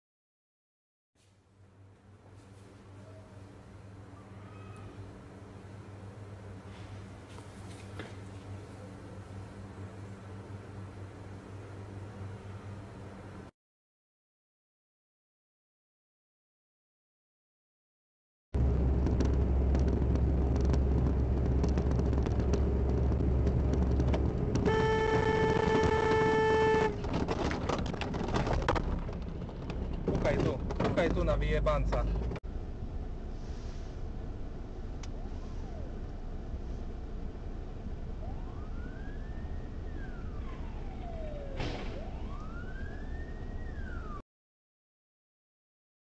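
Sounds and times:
car road and engine rumble: 18.6s - 44.2s
car horn blast: 24.6s - 27.0s
emergency siren wailing: 24.6s - 27.0s, 35.0s - 36.2s, 38.0s - 44.2s.

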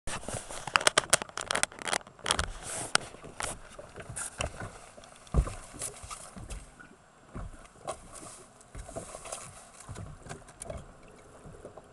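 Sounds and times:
clicks knocks and rustling: 0.5s - 6.7s
heavy thump on boat deck: 3.5s - 6.7s, 7.3s - 8.1s.

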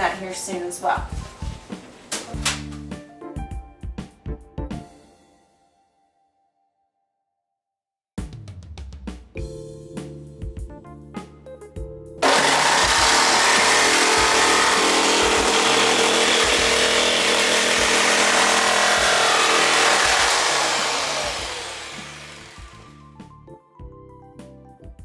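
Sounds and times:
background music: 0.0s - 6.1s, 8.3s - 25.0s
jigsaw cutting metal: 12.2s - 23.0s.

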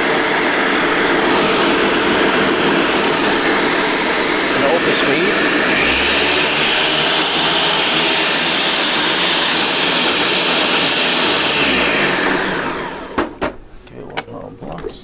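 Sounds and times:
blender motor spinning down: 0.0s - 13.4s
blender running: 0.0s - 13.6s
sharp knocks: 13.2s - 13.6s.

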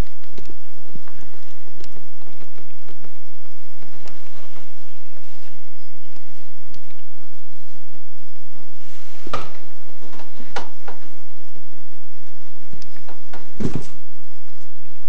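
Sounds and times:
footsteps and handling thumps: 13.0s - 14.0s.

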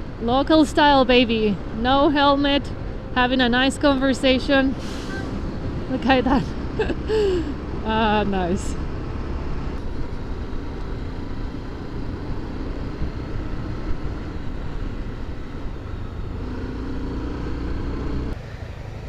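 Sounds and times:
wind rumble on microphone: 7.5s - 16.4s.

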